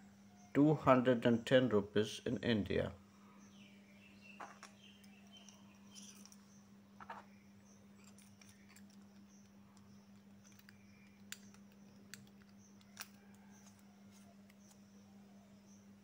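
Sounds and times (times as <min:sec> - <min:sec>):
steady low hum: 0:00.0 - 0:16.0
pen parts clicking and tapping: 0:08.0 - 0:14.8.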